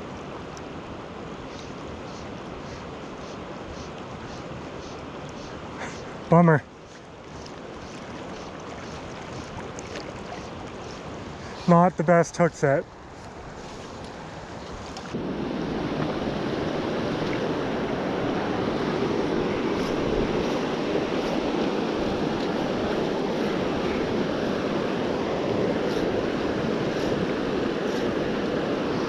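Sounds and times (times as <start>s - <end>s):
river rushing over rocks: 14.2s - 29.0s.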